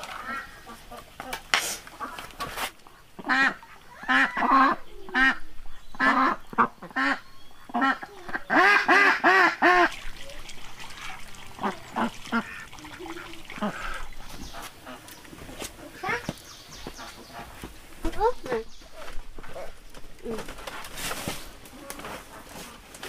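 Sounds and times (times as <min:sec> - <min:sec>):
ducks quacking: 0:00.0 - 0:19.8.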